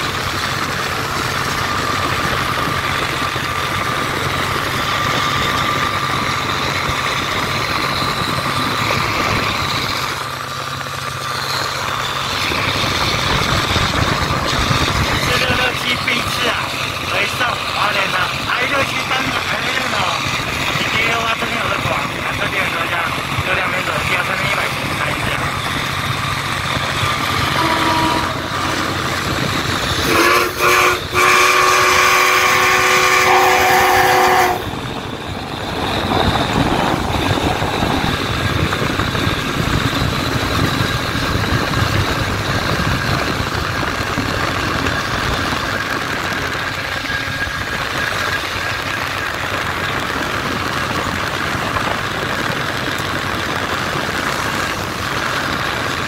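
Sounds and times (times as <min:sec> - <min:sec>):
road noise from car: 0:00.0 - 0:33.3, 0:34.6 - 0:56.0
train running rumble: 0:00.0 - 0:56.0
locomotive whistle blast: 0:27.5 - 0:29.0, 0:30.0 - 0:34.7.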